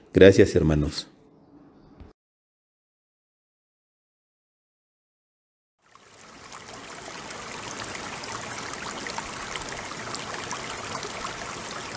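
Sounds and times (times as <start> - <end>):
rushing trickling water: 5.8 - 11.9.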